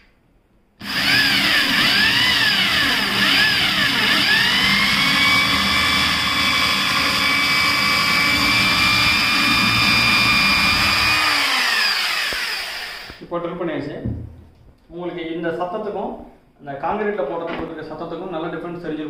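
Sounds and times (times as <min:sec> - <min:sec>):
drill boring into wood: 0:00.8 - 0:13.2.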